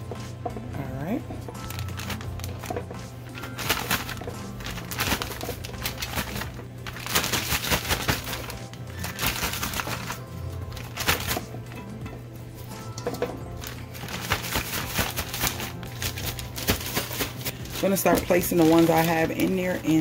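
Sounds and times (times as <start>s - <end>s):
background music: 0.0s - 20.0s
plastic bag crinkling: 1.6s - 11.6s, 13.1s - 20.0s.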